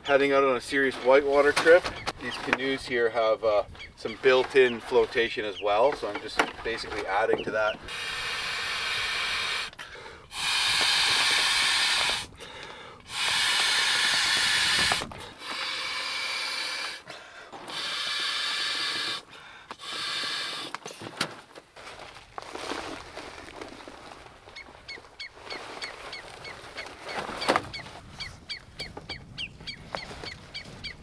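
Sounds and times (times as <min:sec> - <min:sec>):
airbag being blown up by mouth: 0:10.3 - 0:12.4, 0:13.1 - 0:17.0.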